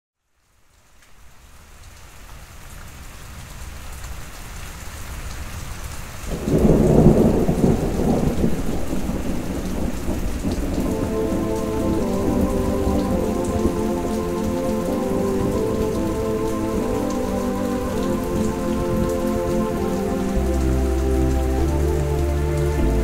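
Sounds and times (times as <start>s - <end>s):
steady rain: 0.2s - 23.0s
rolling thunder rumble: 6.3s - 23.0s
held musical tones: 10.8s - 23.0s.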